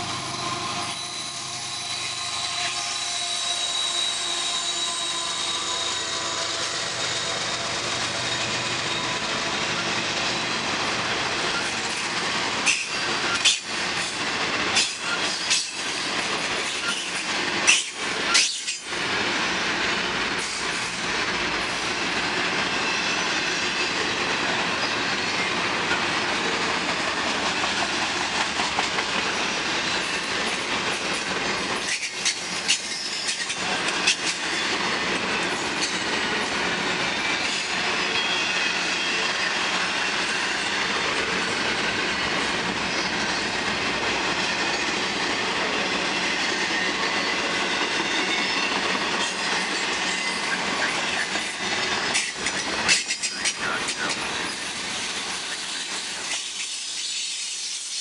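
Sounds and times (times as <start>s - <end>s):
freight train wheels on rail: 0.0s - 58.0s
faint thin squeal: 0.2s - 9.9s, 31.8s - 33.6s.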